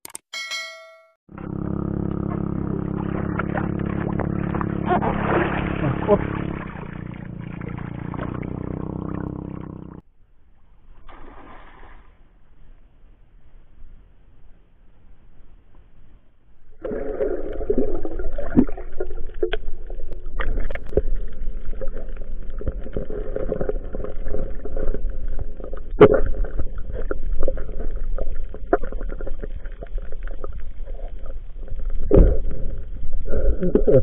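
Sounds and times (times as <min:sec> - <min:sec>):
sharp clicks and knocks: 0:00.0 - 0:01.2
low underwater rumble: 0:01.3 - 0:10.0, 0:16.6 - 0:34.0
gurgling water: 0:01.9 - 0:10.0, 0:16.8 - 0:34.0.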